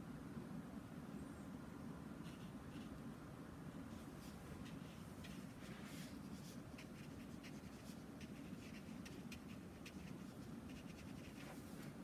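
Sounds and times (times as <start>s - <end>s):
paintbrush strokes on paper: 2.2s - 3.0s, 3.8s - 12.0s.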